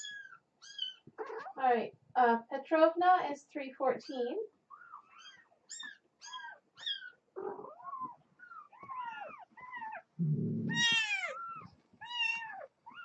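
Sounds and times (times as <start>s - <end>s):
kittens mewing: 4.7s - 13.0s.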